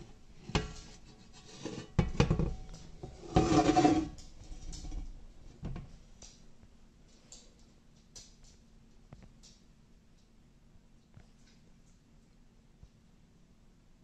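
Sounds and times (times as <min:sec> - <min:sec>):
skillet grinding scrape: 0:00.7 - 0:02.2, 0:03.0 - 0:04.2.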